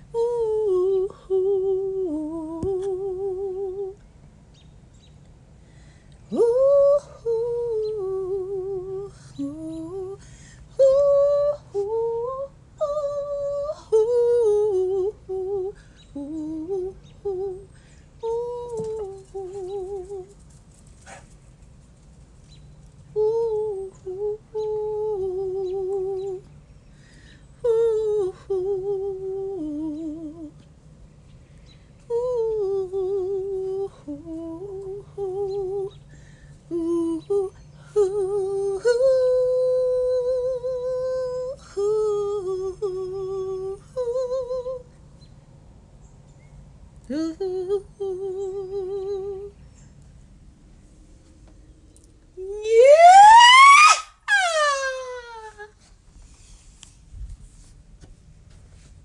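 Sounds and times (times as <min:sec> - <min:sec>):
woman humming: 0:00.0 - 0:04.0, 0:06.3 - 0:10.2, 0:52.4 - 0:55.8.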